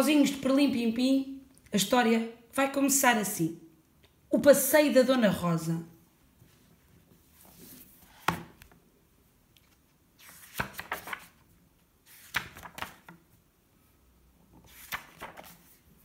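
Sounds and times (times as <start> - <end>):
paper pages rustling: 6.4 - 8.8, 9.5 - 13.4, 14.5 - 16.0
book knock: 8.2 - 8.6.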